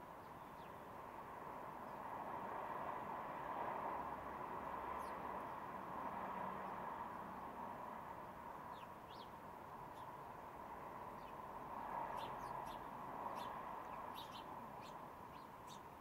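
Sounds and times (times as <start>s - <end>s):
sparrows chirping: 0.0s - 0.9s, 1.8s - 2.1s, 4.4s - 5.6s, 8.6s - 16.0s.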